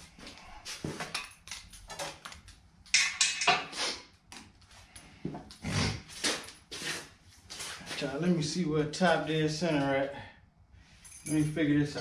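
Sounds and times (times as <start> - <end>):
metal tools clinking: 11.0 - 12.0.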